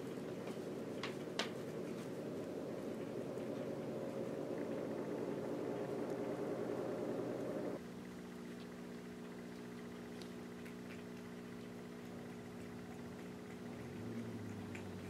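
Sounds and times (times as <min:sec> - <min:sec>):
kitten purring: 0:00.0 - 0:07.8, 0:10.1 - 0:15.0
steady hum: 0:00.0 - 0:08.1.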